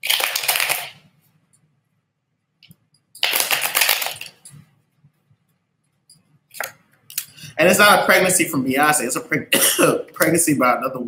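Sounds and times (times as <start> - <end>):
cards being shuffled: 3.2 - 4.4.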